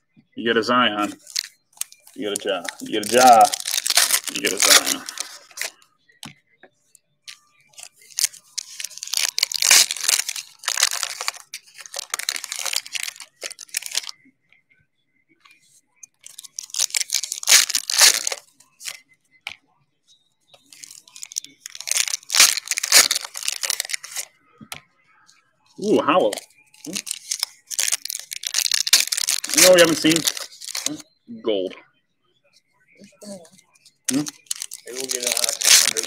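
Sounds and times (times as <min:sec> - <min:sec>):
foil packs tearing and crinkling: 0:01.0 - 0:05.8, 0:07.8 - 0:14.1, 0:16.2 - 0:19.0, 0:20.7 - 0:24.3, 0:26.2 - 0:31.0, 0:34.0 - 0:36.0.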